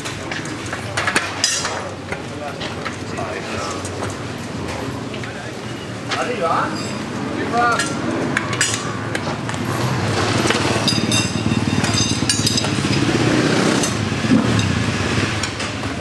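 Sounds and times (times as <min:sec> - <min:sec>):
tyre irons clinking on rim: 0:00.2 - 0:14.8
motorcycle engine drone: 0:06.9 - 0:16.0.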